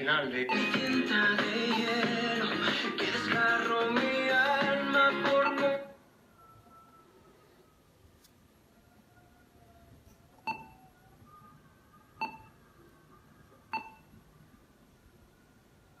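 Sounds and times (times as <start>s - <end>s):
touchscreen key beeps: 10.4s - 10.8s, 12.2s - 12.5s, 13.8s - 14.0s.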